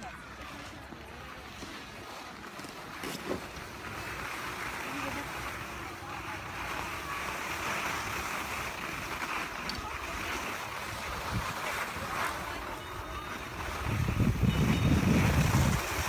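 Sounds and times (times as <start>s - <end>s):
wind on microphone: 13.2s - 16.0s.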